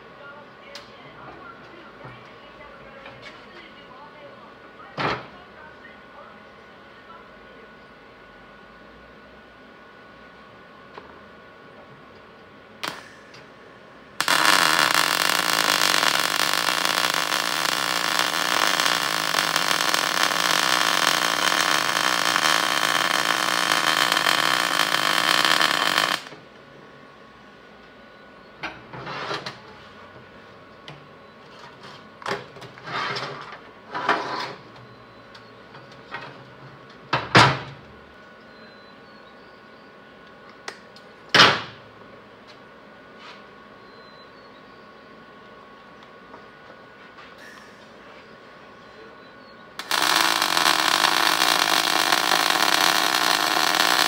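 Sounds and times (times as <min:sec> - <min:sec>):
welder arc buzzing: 0:12.8 - 0:13.3, 0:14.2 - 0:26.4, 0:49.8 - 0:54.0.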